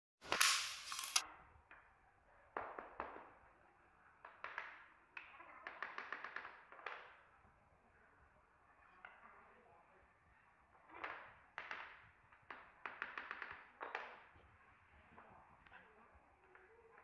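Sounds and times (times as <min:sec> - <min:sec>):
tapping block knocking floor planks: 0:10.9 - 0:14.3.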